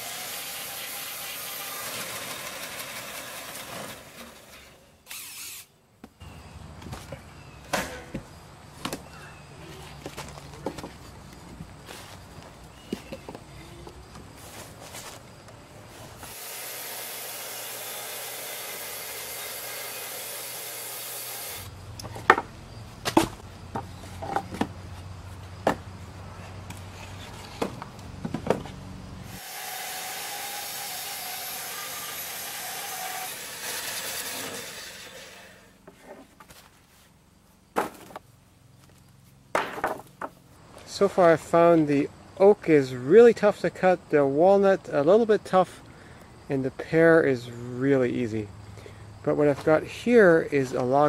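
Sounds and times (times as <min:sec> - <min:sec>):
bandsaw blade cutting log: 0:00.0 - 0:05.7, 0:16.2 - 0:21.7, 0:29.3 - 0:35.8
wooden boards clattering: 0:37.8 - 0:38.2, 0:39.5 - 0:40.4.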